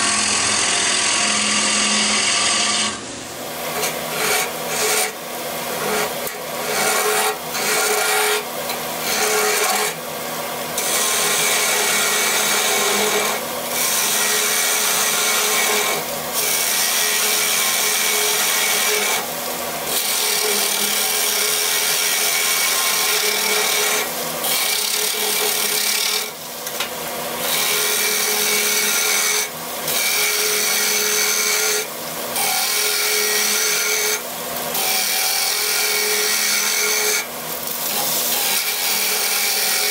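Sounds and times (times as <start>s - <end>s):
lathe humming: 0.0s - 29.2s
gouge cutting wood on lathe: 0.0s - 39.9s.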